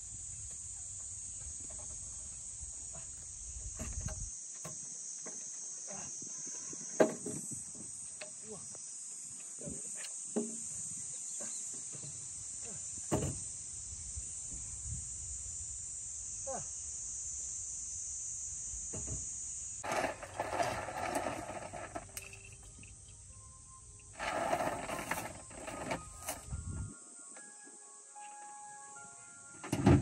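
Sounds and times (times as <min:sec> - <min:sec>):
insects chirping shrilly: 0:10.0 - 0:27.2.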